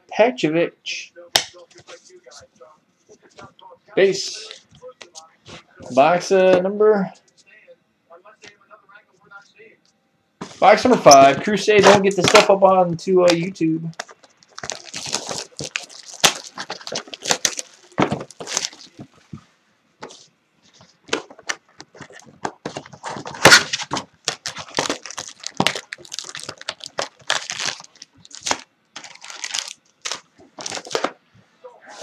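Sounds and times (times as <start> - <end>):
wrapping and cardboard crinkling: 13.4 - 19.4, 20.0 - 31.1.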